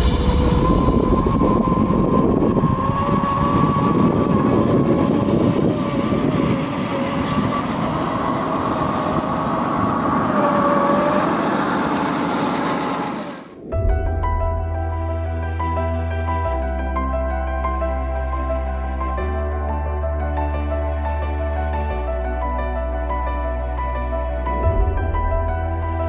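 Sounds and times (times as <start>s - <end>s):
electric motor and gears whining: 0.0s - 13.7s.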